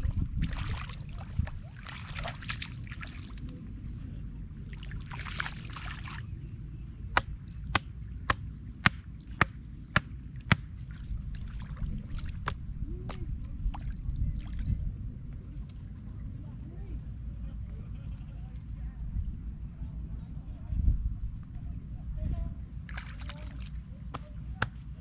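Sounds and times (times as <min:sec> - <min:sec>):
floodwater splashing and sloshing: 0:00.0 - 0:16.4, 0:22.8 - 0:25.0
steady low rumble: 0:00.0 - 0:25.0.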